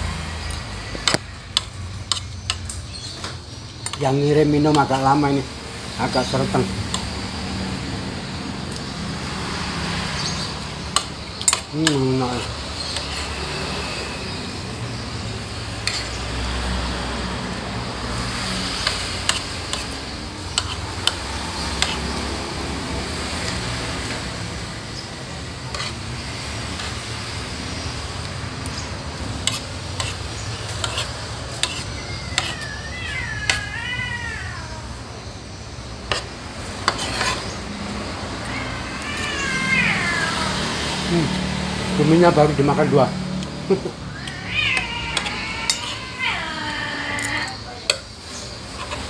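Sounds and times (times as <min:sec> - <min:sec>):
spoon scraping ceramic plate: 0:11.0 - 0:13.5, 0:15.8 - 0:16.2, 0:18.8 - 0:22.2, 0:25.7 - 0:26.1, 0:29.4 - 0:32.7, 0:36.1 - 0:37.6, 0:44.8 - 0:46.0, 0:48.7 - 0:49.0.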